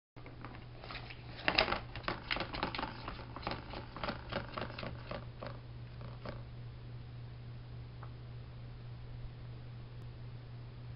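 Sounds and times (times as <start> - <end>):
ball clattering around plastic track: 0.4 - 6.4.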